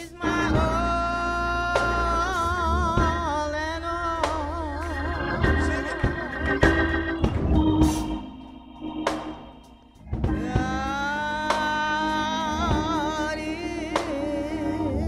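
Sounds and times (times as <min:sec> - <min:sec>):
deep bass: 0:00.0 - 0:15.0
organ vibrato chords: 0:00.0 - 0:15.0
sharp percussive hits: 0:06.6 - 0:10.0.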